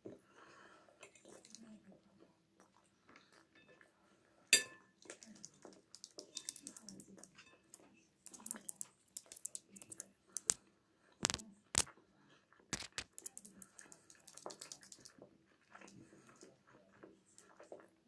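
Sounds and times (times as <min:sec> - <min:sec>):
person chewing: 0:08.2 - 0:10.6, 0:11.2 - 0:11.9, 0:12.8 - 0:15.1.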